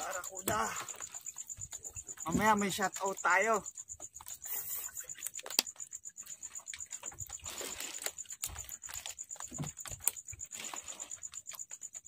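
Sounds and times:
fishing net hauled over boat: 0.0s - 12.0s
wet clicks and taps: 5.0s - 6.0s.

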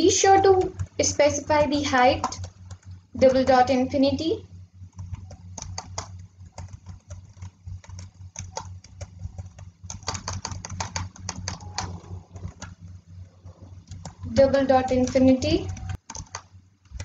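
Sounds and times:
steady low hum: 0.0s - 17.0s
keyboard typing clicks: 2.2s - 3.0s, 4.9s - 17.0s.

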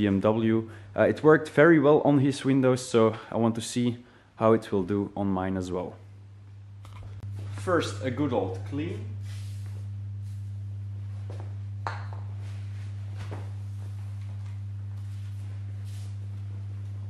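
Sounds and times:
steady low hum: 0.0s - 17.0s
cloth wiping glass: 12.5s - 17.0s.

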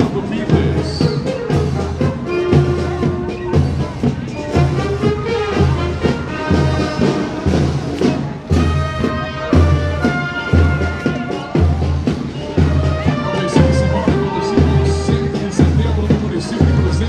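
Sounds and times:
heavy bass drum beat: 0.0s - 17.0s
marching band playing: 0.0s - 17.0s.

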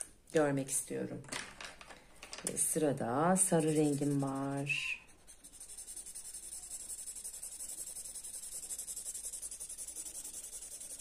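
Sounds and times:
marker scratching on paper: 3.2s - 11.0s.

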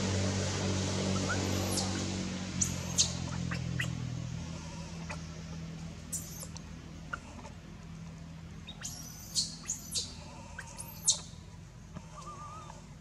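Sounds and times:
high-pitched animal squeaks: 1.2s - 2.0s, 2.6s - 4.0s, 6.1s - 7.3s, 8.6s - 11.4s, 12.1s - 12.8s.

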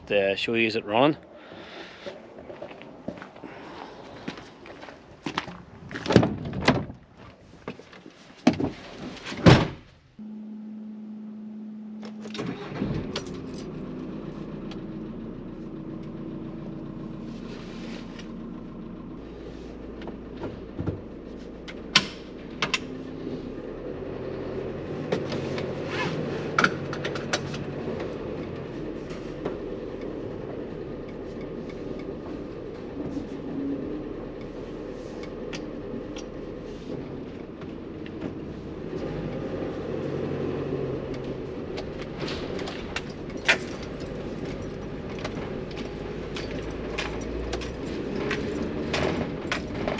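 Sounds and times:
diesel engine running: 0.0s - 5.6s, 10.2s - 49.9s
clicks and rattles in cab: 26.5s - 28.6s, 41.2s - 49.9s.

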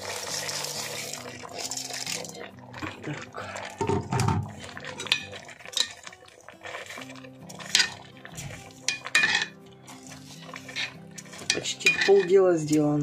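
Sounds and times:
metal spoon clanking on roasting pan: 5.0s - 6.0s, 7.6s - 8.0s, 8.8s - 13.0s.

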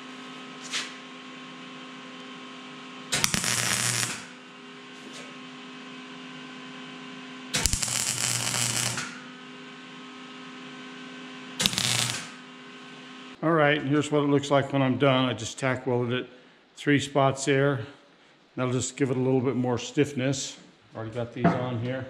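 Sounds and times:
steady electrical hum: 2.2s - 22.0s
welder crackling bursts: 3.2s - 4.4s, 7.6s - 9.2s, 11.6s - 12.4s.

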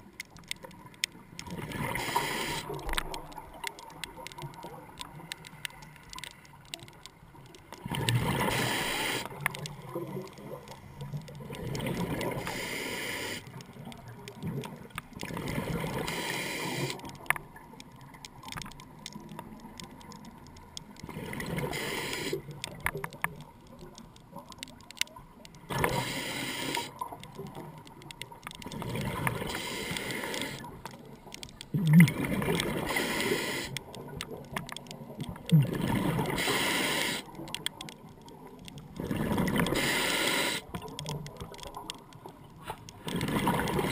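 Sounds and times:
faint clicks: 0.0s - 43.9s
underwater bubble bursts: 31.6s - 36.8s, 43.0s - 43.9s.

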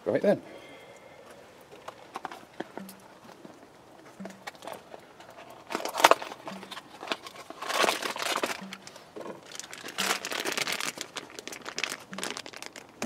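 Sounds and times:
packaging crinkling: 4.4s - 13.0s.

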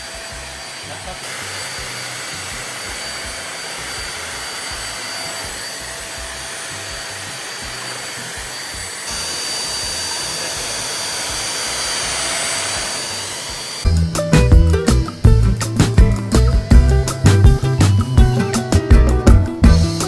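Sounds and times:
vacuum cleaner running: 0.0s - 14.0s, 16.0s - 18.5s.

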